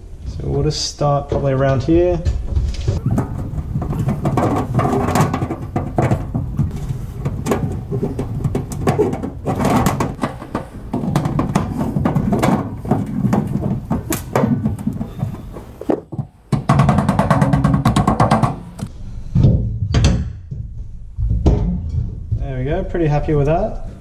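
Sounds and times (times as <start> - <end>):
knocks and taps on metal box: 3.2 - 18.9.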